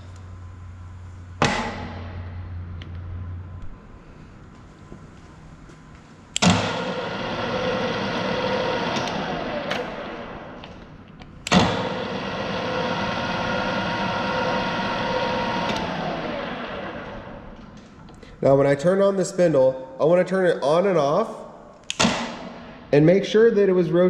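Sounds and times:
drill press machine hum: 0:00.0 - 0:18.4
drill press switch clunk: 0:06.4 - 0:12.8, 0:15.5 - 0:16.1, 0:21.9 - 0:22.7.

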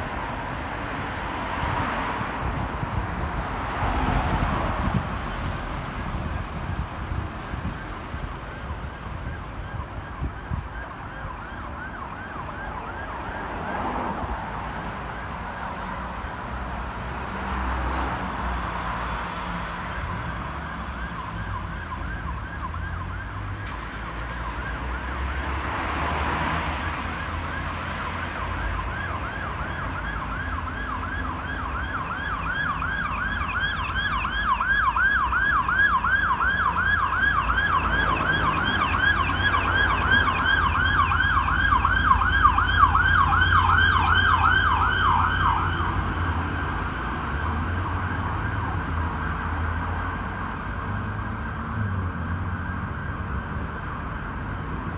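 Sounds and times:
street traffic rumble: 0:00.0 - 0:54.9
siren yelping: 0:19.9 - 0:25.2, 0:27.0 - 0:54.7.

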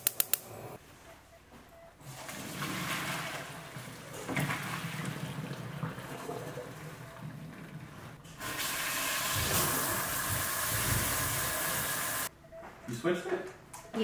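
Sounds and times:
water pouring into a colander: 0:02.2 - 0:07.6
steam hissing: 0:08.4 - 0:12.3.

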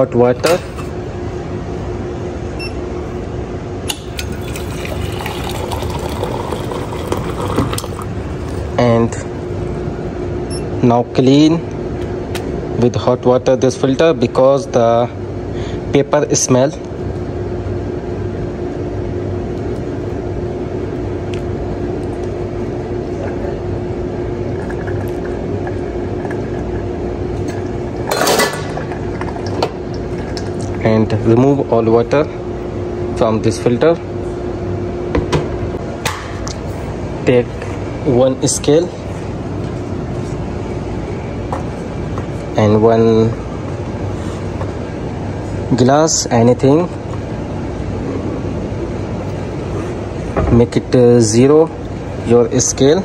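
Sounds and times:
water pouring into a metal pitcher: 0:04.2 - 0:08.1.

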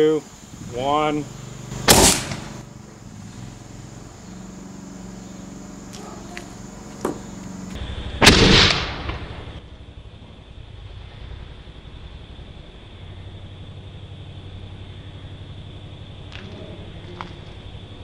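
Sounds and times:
tennis ball cannon bang: 0:01.8 - 0:02.6, 0:07.0 - 0:07.3.

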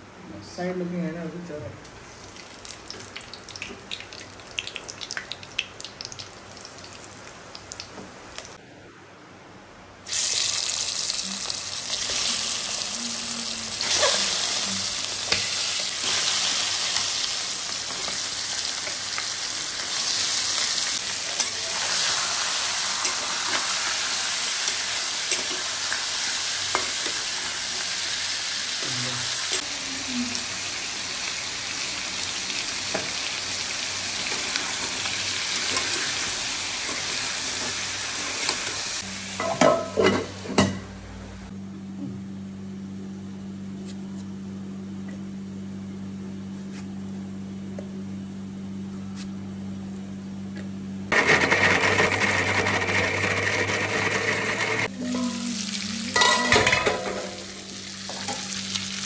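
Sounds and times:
chicken sizzling in hot oil: 0:10.1 - 0:39.2.

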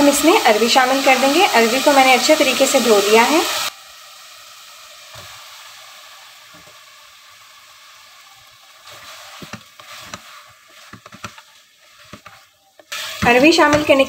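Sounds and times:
meat sizzling in hot oil: 0:00.0 - 0:14.0
wooden spoon knocking on metal pot: 0:13.2 - 0:14.0.

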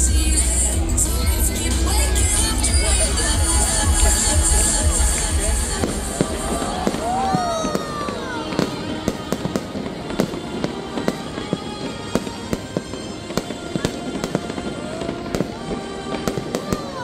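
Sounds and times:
fireworks popping and crackling: 0:02.0 - 0:17.0
falling firework whistle: 0:06.1 - 0:08.9.

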